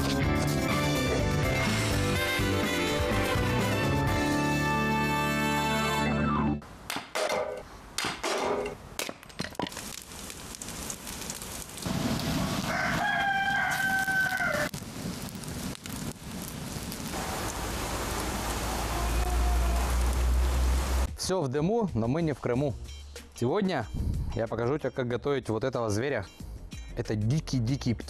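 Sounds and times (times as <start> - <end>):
sharp knocks: 6.9 - 9.2
wood fire crackling: 7.9 - 21.1
rooster crowing: 12.6 - 14.8, 18.1 - 20.6.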